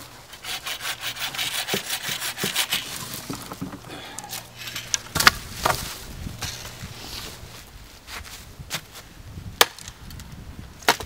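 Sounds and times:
saw cutting wood: 0:00.3 - 0:07.6.

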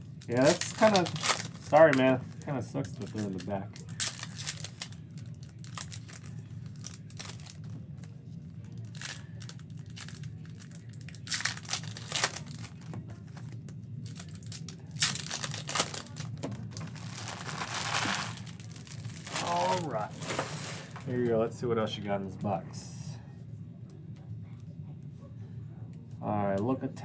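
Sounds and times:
foil wrapper crinkling and tearing: 0:00.0 - 0:07.8, 0:08.7 - 0:21.0.

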